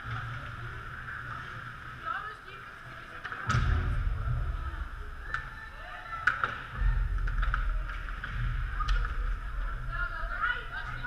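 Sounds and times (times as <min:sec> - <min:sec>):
low rumble: 0:03.5 - 0:05.8
hockey sticks and puck clacking: 0:06.2 - 0:09.4.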